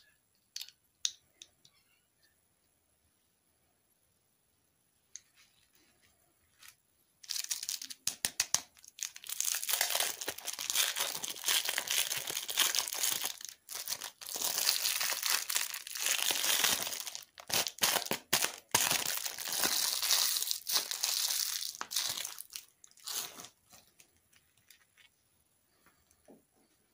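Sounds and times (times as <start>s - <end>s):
plastic wrapper crinkling: 6.6s - 25.2s.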